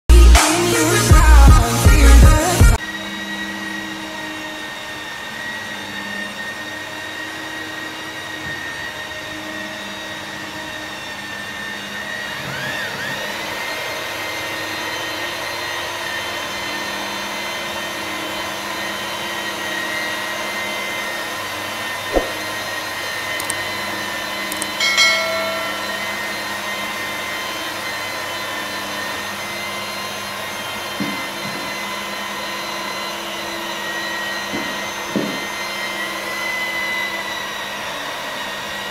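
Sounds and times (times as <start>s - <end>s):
angle grinder motor whine: 0.1s - 38.9s
sharp knock: 22.1s - 22.4s.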